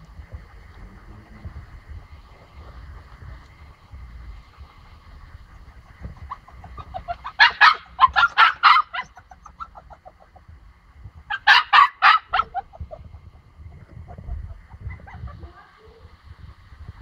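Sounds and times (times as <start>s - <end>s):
puppy barking: 6.3s - 10.2s, 11.3s - 12.9s.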